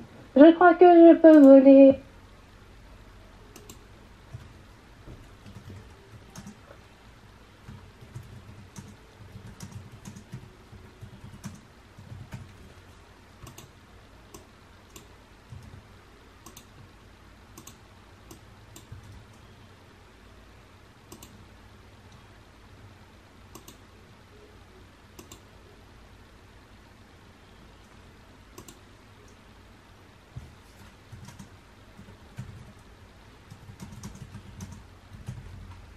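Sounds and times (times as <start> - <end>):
keyboard typing: 3.5 - 6.8, 7.6 - 16.9, 17.5 - 19.5, 21.1 - 21.4, 23.5 - 23.8, 25.1 - 25.5, 27.8 - 29.4, 30.7 - 35.9
mouse clicks: 23.5 - 23.8, 25.2 - 25.5, 28.5 - 29.4.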